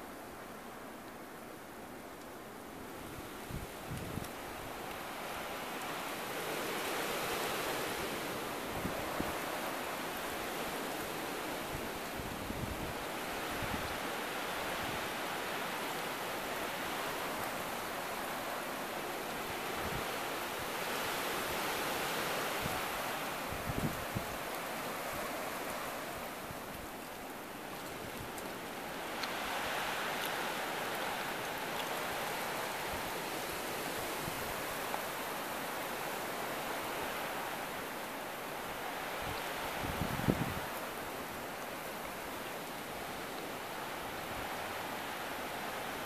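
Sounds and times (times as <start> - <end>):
wind blowing: 2.7 - 46.0
wind buffeting microphone: 22.5 - 24.6, 39.2 - 40.7.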